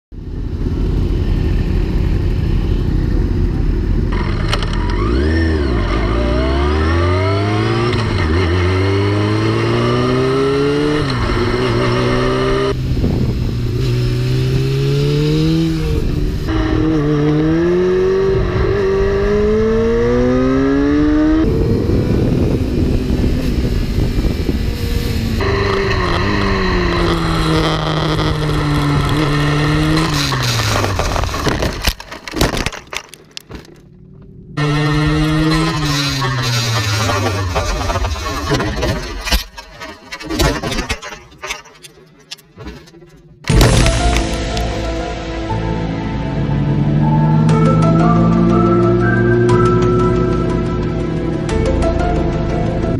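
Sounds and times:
motorcycle engine accelerating: 0:00.2 - 0:32.3, 0:33.0 - 0:39.9, 0:43.3 - 0:52.9
wind rush: 0:11.2 - 0:17.0, 0:20.8 - 0:31.9.

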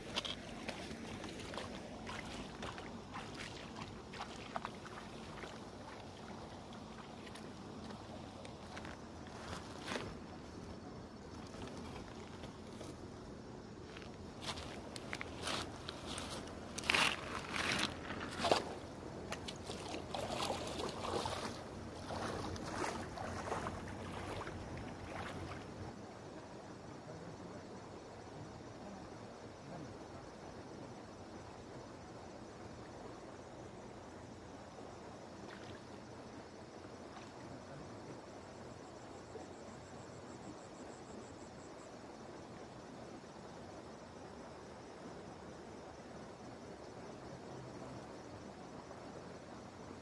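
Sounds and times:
legs wading through water: 0:00.0 - 0:10.2, 0:14.5 - 0:25.9
small splashes and drips: 0:00.1 - 0:08.8, 0:19.3 - 0:25.7, 0:35.5 - 0:35.9.

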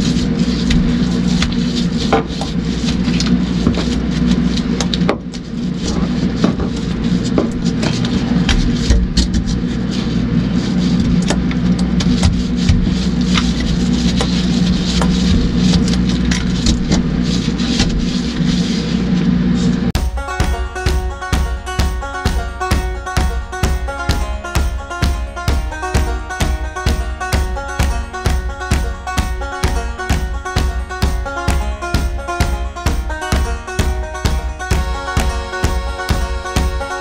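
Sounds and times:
mechanical hum with low rumble: 0:00.0 - 0:37.0.

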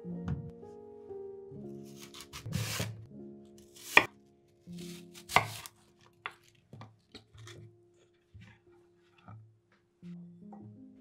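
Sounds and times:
knife cutting apple on board: 0:01.9 - 0:03.0, 0:03.8 - 0:04.1, 0:04.7 - 0:07.6.

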